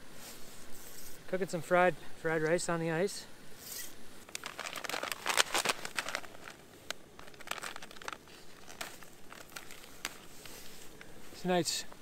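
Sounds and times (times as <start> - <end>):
plastic packet crackling: 4.3 - 11.1.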